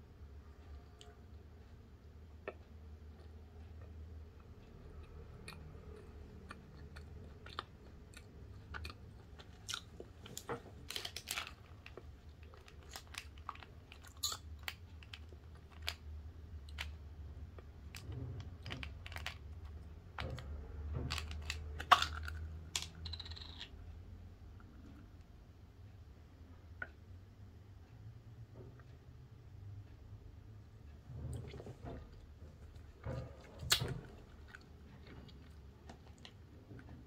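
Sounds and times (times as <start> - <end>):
low steady hum: 0.0 - 37.0
plastic tube clicking and crackling: 9.5 - 23.8.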